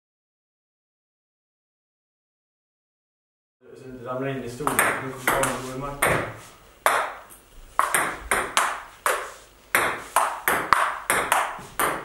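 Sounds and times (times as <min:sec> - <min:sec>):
table tennis ball hits: 0:04.6 - 0:12.0.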